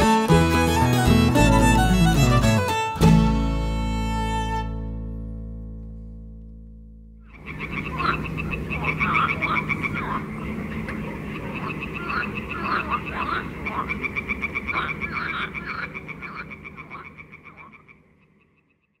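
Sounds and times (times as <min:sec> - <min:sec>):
frogs croaking: 0:07.3 - 0:19.0
frogs trilling: 0:07.3 - 0:19.0.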